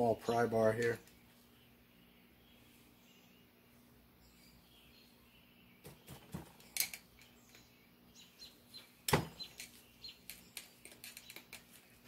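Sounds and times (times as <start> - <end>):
small metal clicks and clinks: 6.6 - 7.7, 9.5 - 11.8.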